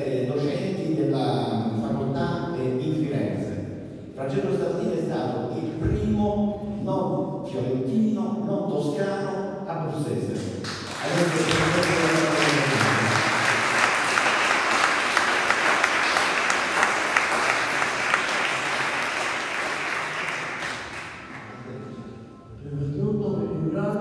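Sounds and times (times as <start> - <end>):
audience applauding: 10.6 - 21.8.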